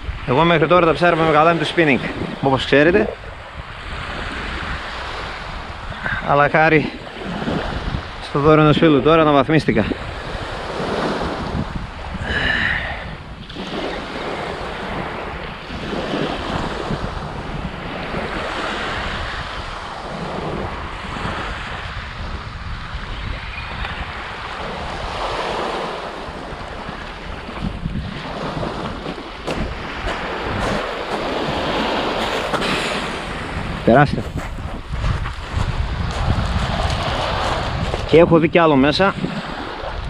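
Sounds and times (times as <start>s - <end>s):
wind rumbling on microphone: 0.0s - 40.0s
waves washing onto pebbles: 23.9s - 38.4s.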